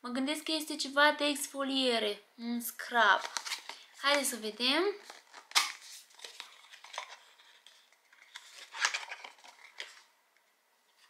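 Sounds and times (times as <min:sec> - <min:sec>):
paper packaging crinkling and tearing: 0:03.1 - 0:04.3, 0:05.0 - 0:10.1
packaging rustling: 0:03.2 - 0:04.2, 0:05.0 - 0:10.1.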